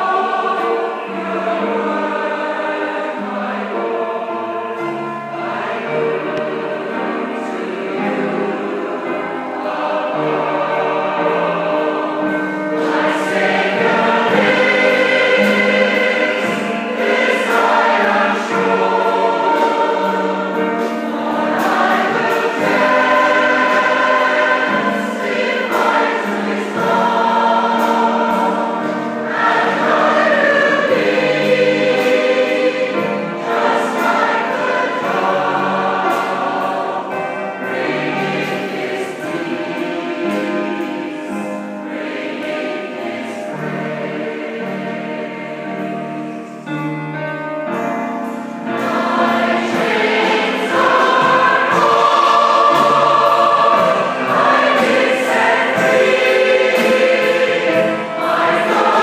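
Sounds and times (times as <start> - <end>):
choir singing a hymn: 0.0 - 59.0.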